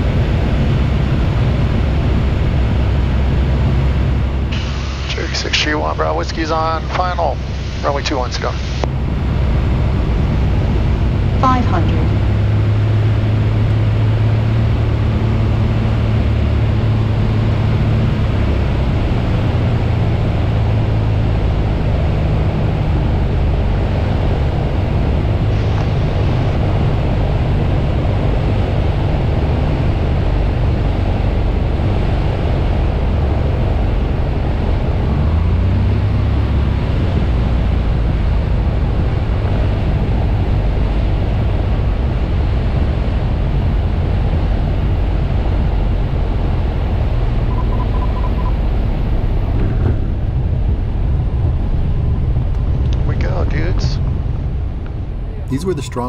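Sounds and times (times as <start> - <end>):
aircraft engine running: 0.0 - 56.0
wind and airflow noise in cabin: 0.0 - 56.0.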